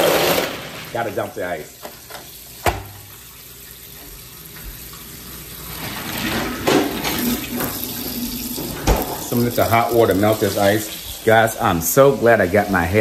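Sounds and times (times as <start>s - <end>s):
faucet water running into sink: 0.0s - 13.0s.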